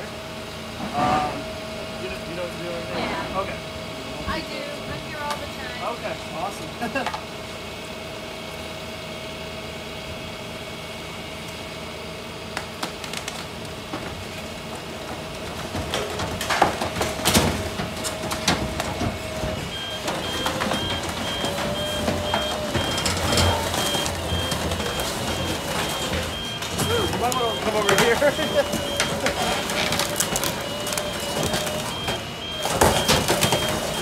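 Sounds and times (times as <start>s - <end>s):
grinder machine whining: 17.1s - 34.0s
reversing alarm beeping: 17.4s - 34.0s.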